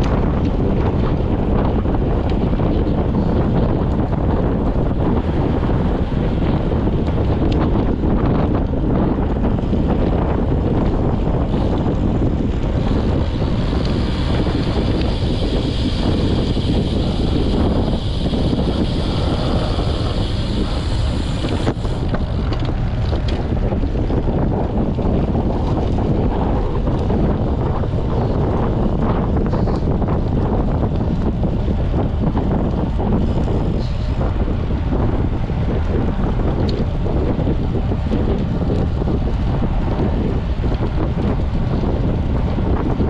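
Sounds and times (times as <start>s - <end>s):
wind buffeting microphone: 0.0s - 43.0s
high hiss: 13.9s - 22.0s.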